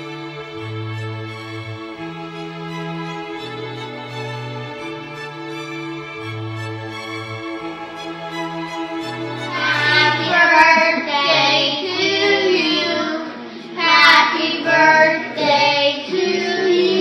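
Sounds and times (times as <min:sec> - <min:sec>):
children singing together: 0:09.3 - 0:17.0.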